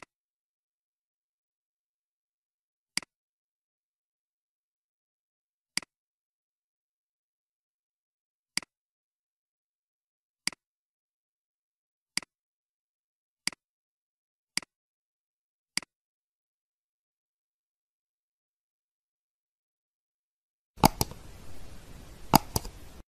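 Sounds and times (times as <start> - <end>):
computer mouse clicks: 20.8 - 23.0.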